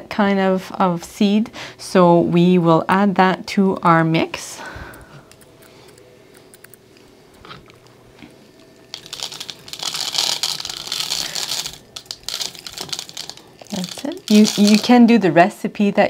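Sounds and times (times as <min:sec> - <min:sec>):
seeds pouring into glass jar: 0:08.9 - 0:15.0.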